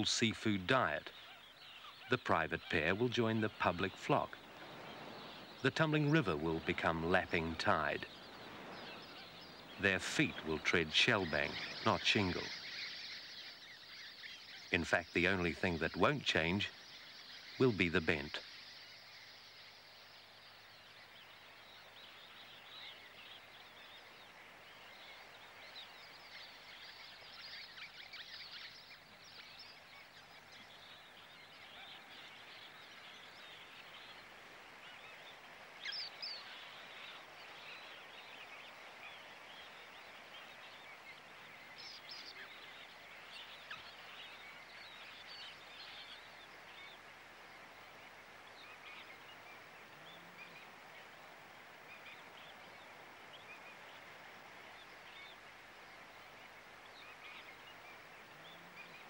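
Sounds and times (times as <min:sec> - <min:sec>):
loud bird call: 0:00.0 - 0:18.6
small birds twittering: 0:00.0 - 0:59.0
steady hiss: 0:00.0 - 0:59.0.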